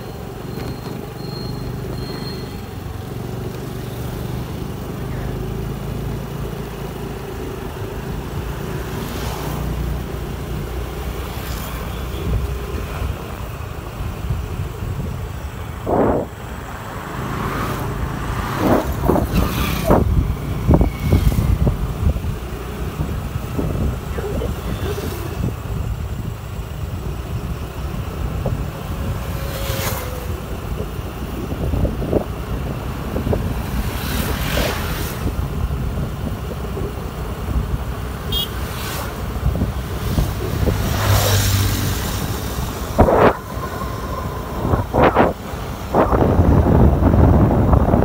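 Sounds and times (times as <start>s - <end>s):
scooter engine and tyres: 0.0s - 48.0s
wind buffeting microphone: 18.5s - 29.4s, 39.3s - 48.0s.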